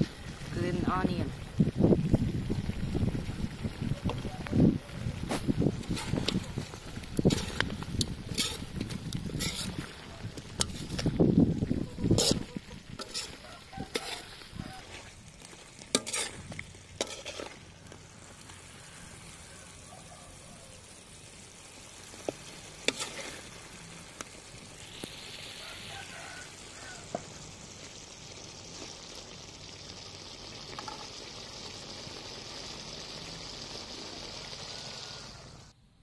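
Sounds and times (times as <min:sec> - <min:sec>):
food sizzling in a wok: 0:00.0 - 0:35.8
metal spatula scraping pan: 0:05.8 - 0:09.9, 0:10.5 - 0:11.1, 0:12.0 - 0:15.1, 0:15.9 - 0:17.6, 0:22.8 - 0:23.6.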